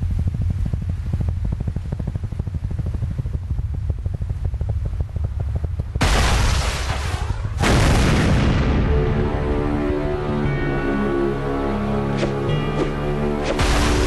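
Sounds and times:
helicopter rotors chopping: 0.0 - 9.0
deep engine rumble: 0.0 - 14.0
loud blast: 6.0 - 9.5, 13.6 - 14.0.

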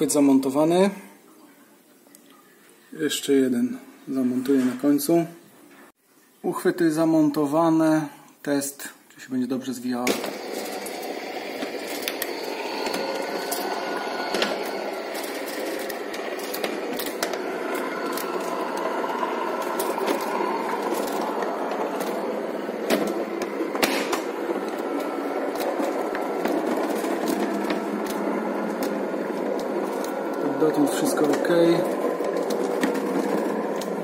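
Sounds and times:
electric shutter motor running: 10.1 - 34.0.

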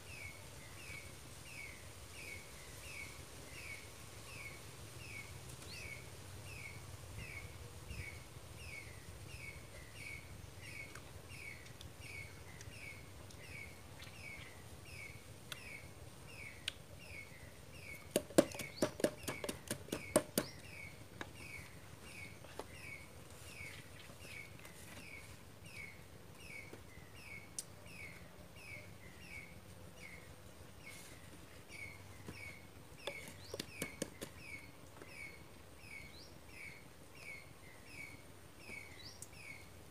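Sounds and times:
bird chirping: 0.0 - 39.8
stick pounding bamboo mortar: 18.1 - 20.6, 33.1 - 34.4.

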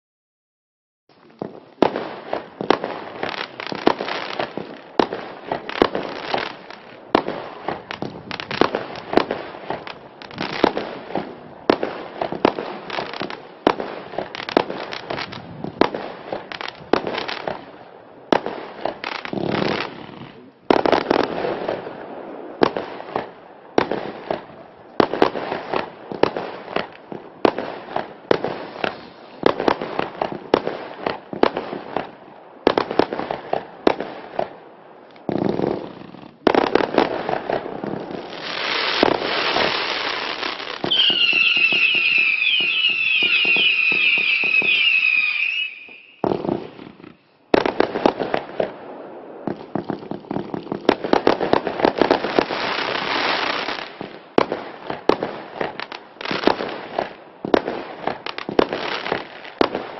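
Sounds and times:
fireworks bangs and pops: 1.1 - 59.9
warbling firework whistle: 40.8 - 46.3.

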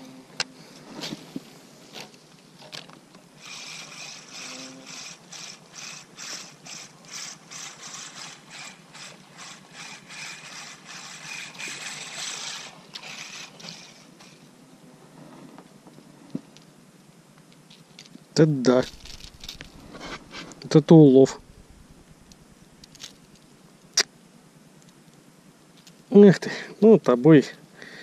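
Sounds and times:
fishing reel clicking whir: 3.4 - 14.4, 18.8 - 20.3.

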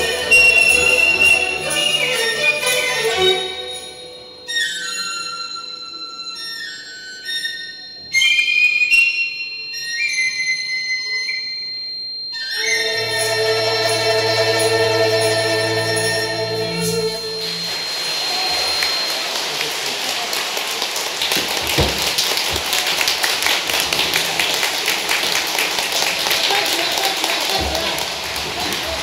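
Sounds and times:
bamboo flute and folk orchestra chord: 0.0 - 4.7, 12.6 - 19.1
audience applause: 12.8 - 29.0.

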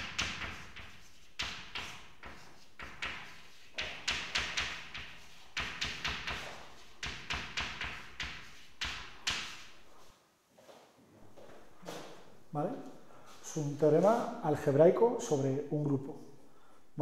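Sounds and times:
writing taps and scratches on board: 0.0 - 9.7.

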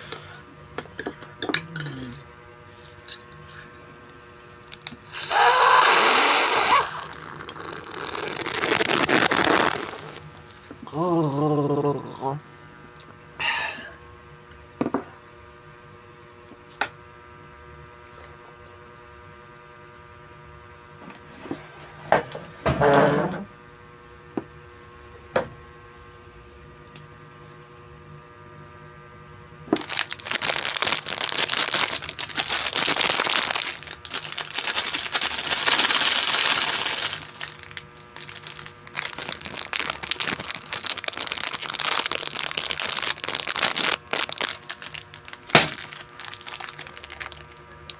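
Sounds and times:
faint steady hum: 0.0 - 47.9
plastic packaging crinkling: 4.8 - 10.2, 29.8 - 47.9.

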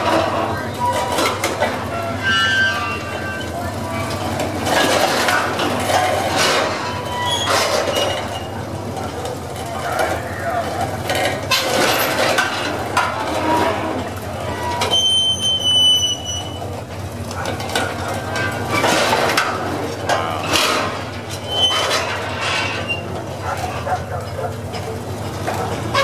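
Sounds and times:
steel machine legs clanking: 0.0 - 26.0
high-pitched squeal: 0.1 - 8.6, 18.0 - 23.1.

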